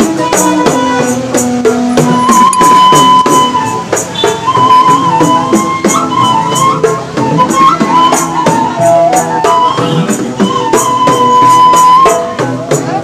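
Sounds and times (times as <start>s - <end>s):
bamboo flute melody: 0.0s - 13.0s.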